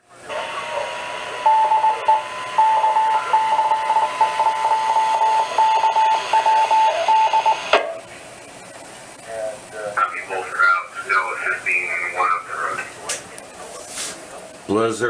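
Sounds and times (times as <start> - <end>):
radio hiss: 0.0 - 14.6
steady high tone: 0.3 - 7.7
morse code beeps: 1.4 - 7.8
burst of radio noise: 10.0 - 13.3.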